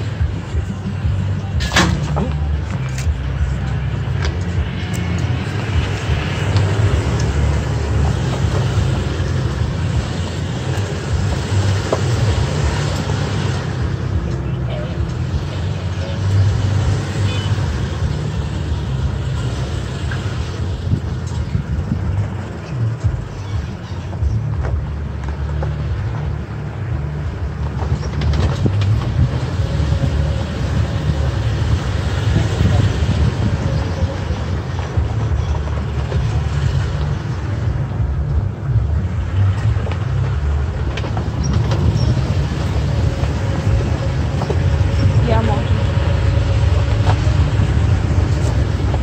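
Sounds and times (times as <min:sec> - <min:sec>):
pickup truck engine rumble: 0:00.0 - 0:49.0.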